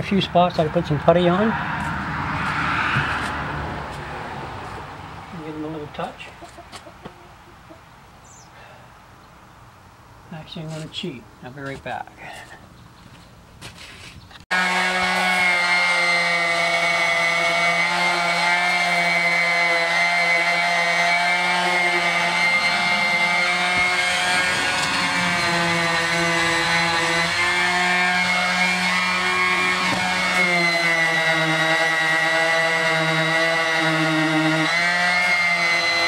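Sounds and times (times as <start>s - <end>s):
orbital sander sanding metal: 14.5s - 36.0s.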